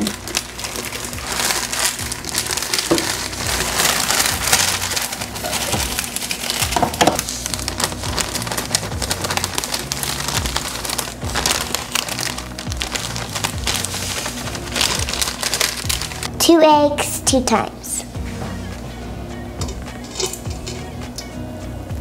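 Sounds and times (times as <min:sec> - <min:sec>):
plastic bag crinkling: 0:00.0 - 0:16.4.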